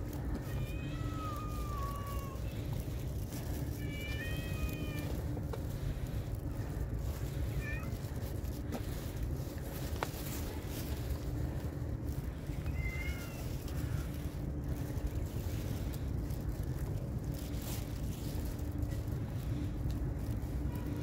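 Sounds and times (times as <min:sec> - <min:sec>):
low background rumble: 0:00.0 - 0:21.0
cat meowing: 0:00.4 - 0:02.6, 0:12.6 - 0:13.5.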